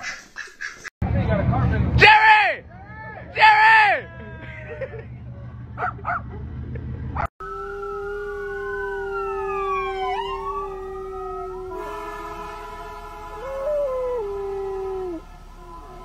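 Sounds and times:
dog howling: 0:07.4 - 0:11.8, 0:13.4 - 0:16.0
emergency siren sliding down: 0:07.4 - 0:16.0.

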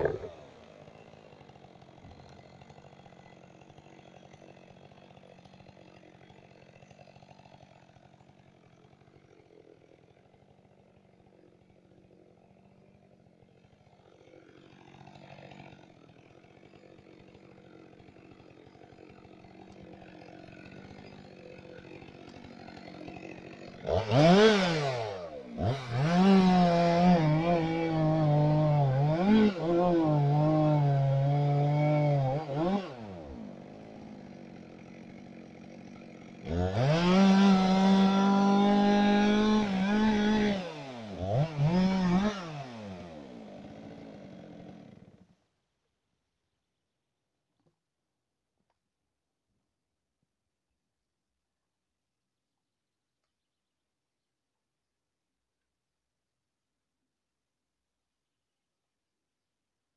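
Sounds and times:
chainsaw idling and revving: 0:00.0 - 0:45.7
chainsaw cutting through log: 0:00.0 - 0:45.8.

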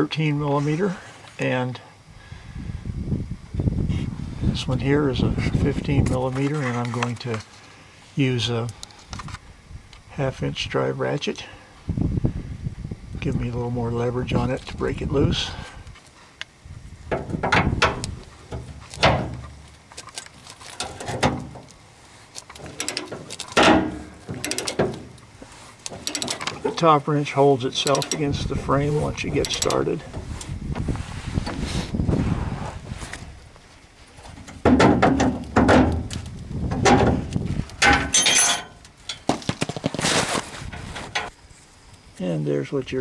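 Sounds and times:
metallic knocks: 0:37.8 - 0:39.3.

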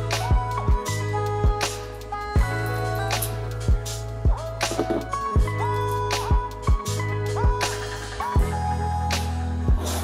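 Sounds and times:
bass line: 0:00.0 - 0:09.8
deep drum beat: 0:03.7 - 0:05.5.

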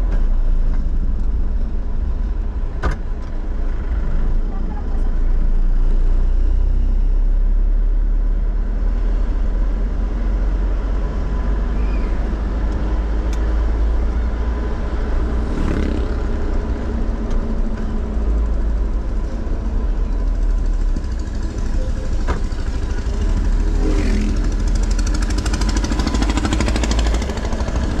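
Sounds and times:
vehicle engine rumble: 0:00.0 - 0:28.0.

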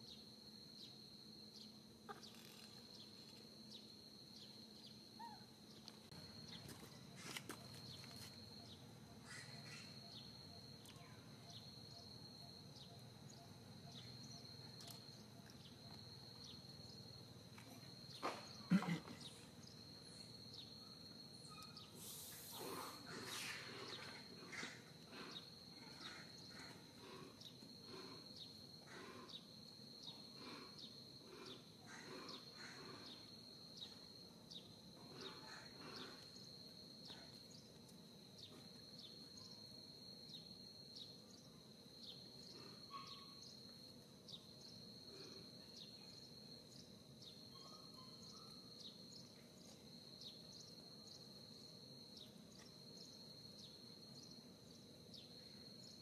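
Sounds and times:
insects buzzing and chirping: 0:00.0 - 0:56.0.

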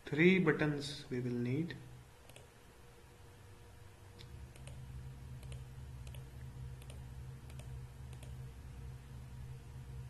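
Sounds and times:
computer mouse clicking: 0:02.2 - 0:02.5, 0:04.2 - 0:04.8, 0:05.4 - 0:08.4
low hum: 0:03.0 - 0:10.0.

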